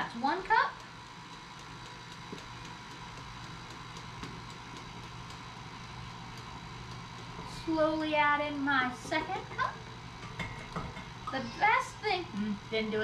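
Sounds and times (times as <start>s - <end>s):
stand mixer running: 0.1s - 10.4s.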